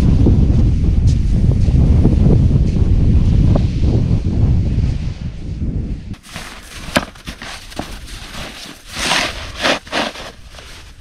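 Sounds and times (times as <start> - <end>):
wind buffeting microphone: 0.0 - 11.0
crunching and scraping in snow: 6.2 - 11.0.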